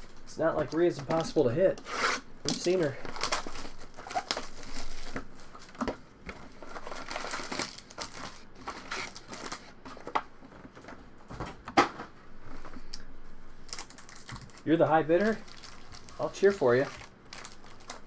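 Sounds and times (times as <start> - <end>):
foil packs crinkling: 0.4 - 1.6, 2.5 - 10.1, 13.6 - 18.0.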